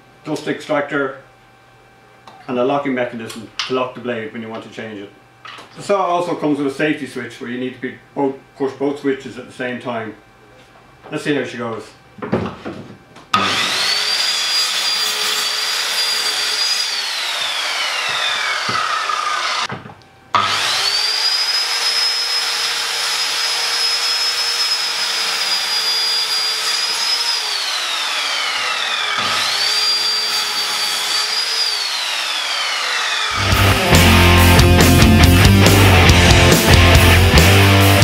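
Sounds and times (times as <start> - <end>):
circular saw cutting timber: 13.4 - 19.7, 20.4 - 38.0.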